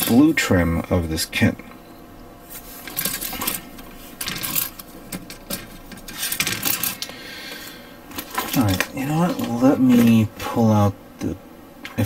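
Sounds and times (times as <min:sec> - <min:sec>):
plastic parts clattering: 0:02.8 - 0:07.1, 0:08.1 - 0:10.2.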